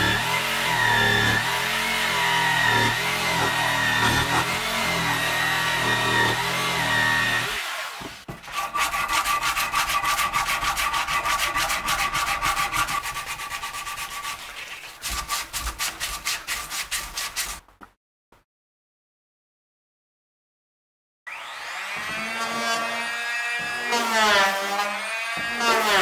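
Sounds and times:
fast rubbing strokes on wood: 8.4s - 17.6s.

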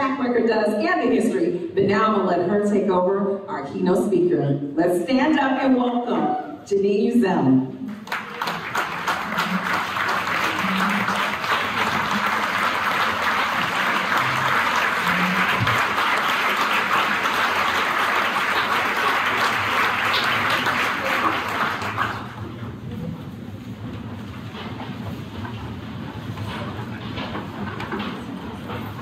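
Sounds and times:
audience applauding: 7.9s - 22.6s.

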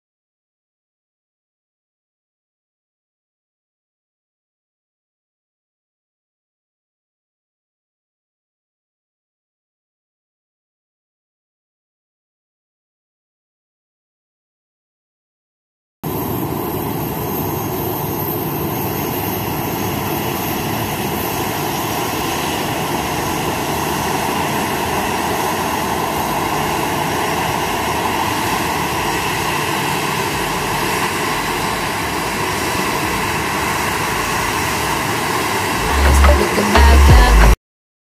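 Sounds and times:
jet engines running: 16.1s - 37.6s.

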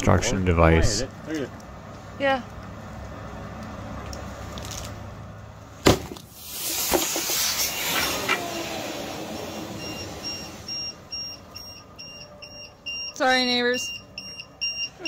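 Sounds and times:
battery bang: 5.8s - 7.4s
battery venting whoosh with pops: 6.0s - 10.8s.

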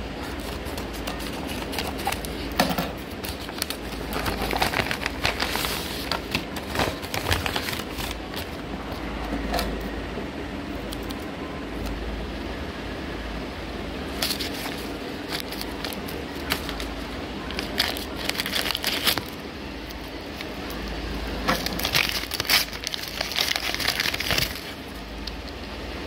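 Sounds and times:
paper and tape crinkling: 0.2s - 9.1s, 14.1s - 25.6s.

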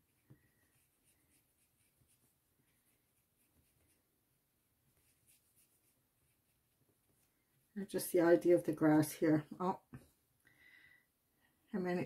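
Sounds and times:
paintbrush strokes on paper: 0.0s - 9.4s.

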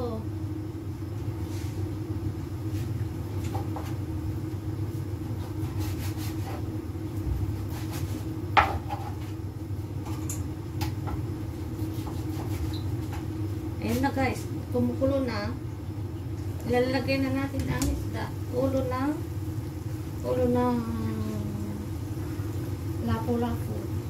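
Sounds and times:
gas burner rumble: 0.0s - 24.0s.

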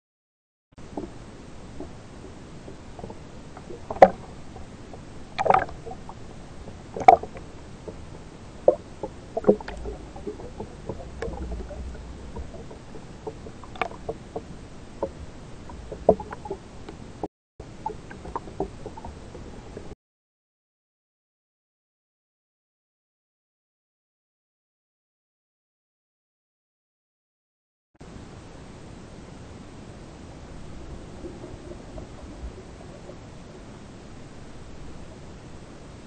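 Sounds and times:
sea water sloshing: 0.8s - 19.9s, 29.9s - 36.0s
steady hiss: 0.8s - 19.9s, 28.0s - 36.0s
sharp water splashes: 5.3s - 6.2s, 6.9s - 7.5s.

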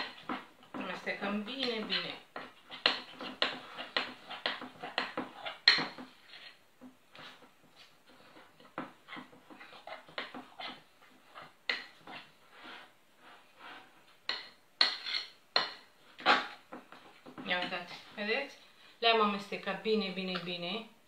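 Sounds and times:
utensil scraping a glass bowl: 0.0s - 6.6s, 14.8s - 16.6s.

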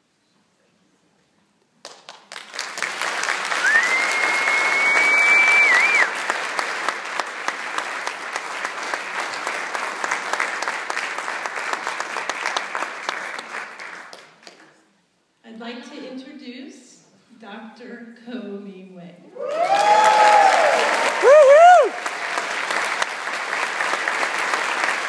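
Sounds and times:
audience applauding: 1.8s - 14.8s, 19.4s - 25.0s
long whistle: 3.6s - 6.1s.

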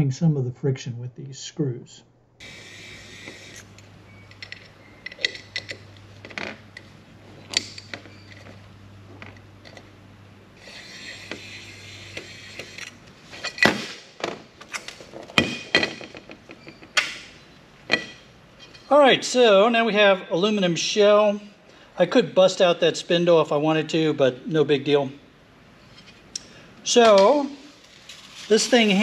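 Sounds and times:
metal parts clicking and tapping: 4.2s - 6.9s.

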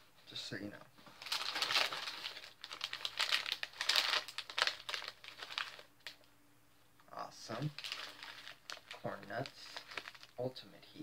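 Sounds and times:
foil snack bag crinkling: 1.2s - 6.2s, 7.6s - 10.4s.

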